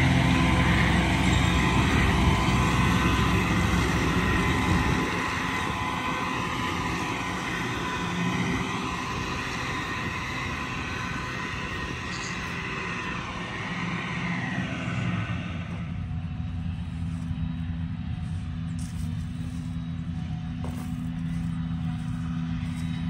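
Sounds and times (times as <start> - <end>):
low engine hum: 0.0 - 23.0.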